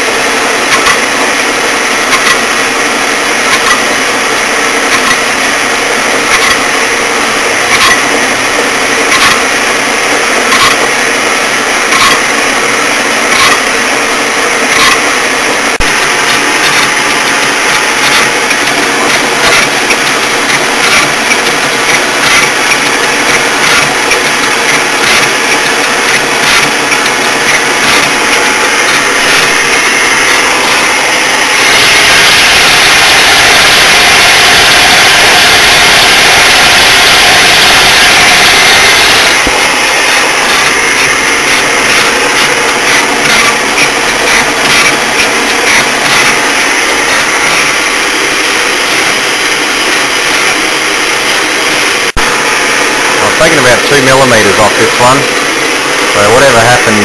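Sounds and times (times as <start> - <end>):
lathe gears whirring: 0.0 - 57.0
metal lathe cutting: 0.0 - 57.0
regular ticking from cut: 14.6 - 49.1.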